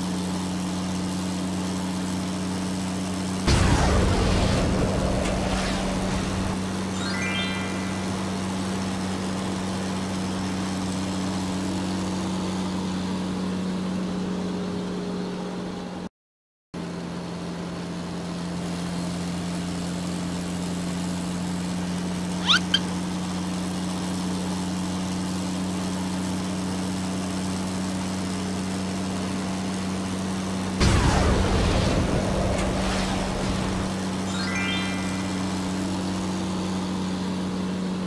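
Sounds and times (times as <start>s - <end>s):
cartoon vehicle engine drone: 1.7s - 15.7s, 22.2s - 25.7s, 30.1s - 38.0s
quick rising squeaks: 22.4s - 22.9s.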